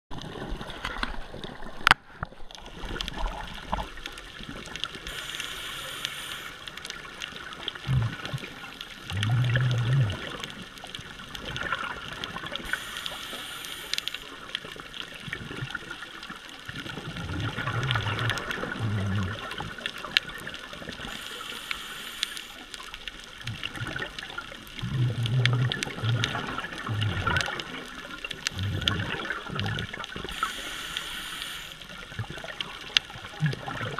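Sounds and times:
exhaled bubbles rumbling underwater: 0:00.1 - 0:33.9
regulator inhale hiss: 0:05.0 - 0:06.9, 0:12.6 - 0:14.4, 0:21.0 - 0:22.7, 0:30.2 - 0:32.0.

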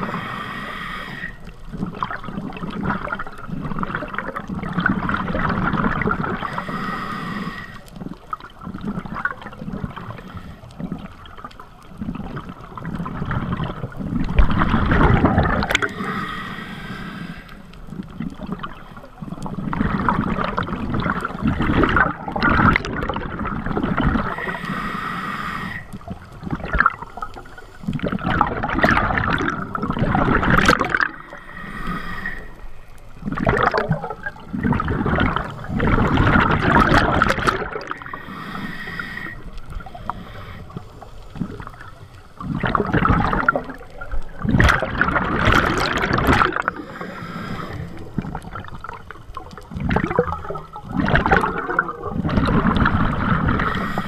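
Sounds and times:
regulator hissing inhale: 0:00.0 - 0:01.6, 0:06.4 - 0:08.0, 0:10.0 - 0:10.9, 0:15.7 - 0:17.9, 0:24.3 - 0:26.1, 0:27.0 - 0:28.0, 0:31.1 - 0:33.1, 0:35.4 - 0:36.2, 0:38.0 - 0:42.6, 0:46.6 - 0:48.4, 0:53.6 - 0:54.0
bubbles gurgling underwater: 0:01.7 - 0:06.8, 0:07.9 - 0:16.0, 0:17.8 - 0:24.6, 0:26.0 - 0:31.4, 0:33.1 - 0:38.3, 0:41.4 - 0:54.0.

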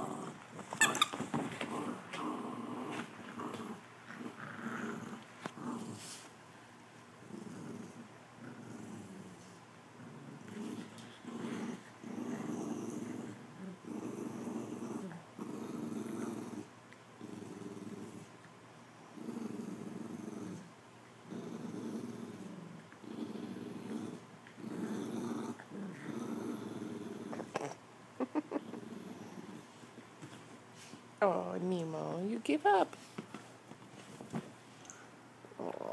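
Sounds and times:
dogs growling: 0:00.0 - 0:06.2, 0:07.2 - 0:18.4, 0:19.1 - 0:30.0, 0:35.5 - 0:35.9.

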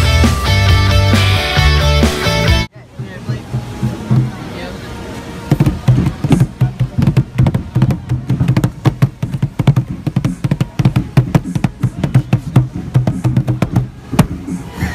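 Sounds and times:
hand drum slaps: 0:05.5 - 0:14.4.

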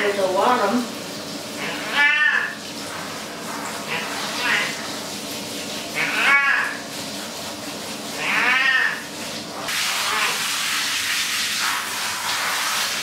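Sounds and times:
shower head spraying water: 0:00.0 - 0:13.0
cat meowing loudly: 0:01.6 - 0:02.6, 0:03.9 - 0:04.8, 0:06.0 - 0:06.8, 0:08.2 - 0:09.0.

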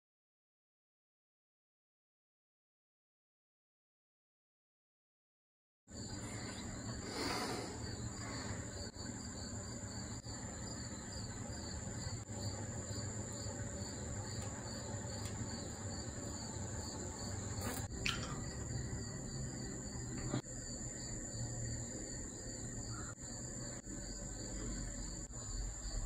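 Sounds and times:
crickets chirping: 0:05.9 - 0:26.0.

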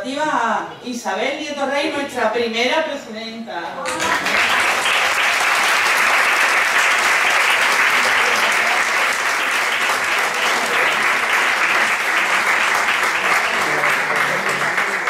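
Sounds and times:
audience applauding: 0:03.9 - 0:15.0.

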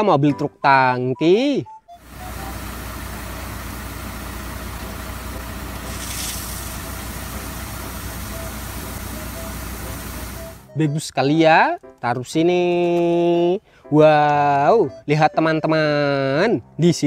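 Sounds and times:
truck engine running: 0:02.0 - 0:10.7
hiss of water spray: 0:02.2 - 0:10.6.

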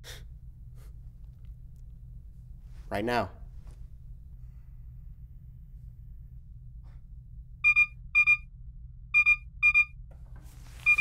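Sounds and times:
low hum: 0:00.0 - 0:11.0
short electronic beeps: 0:07.6 - 0:08.4, 0:09.2 - 0:09.9.

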